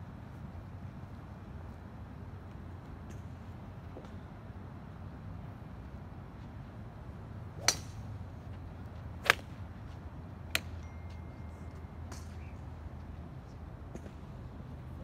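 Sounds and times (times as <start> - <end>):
steady low hum: 0.0 - 15.0
golf clubs striking balls: 7.6 - 8.0, 9.2 - 9.6.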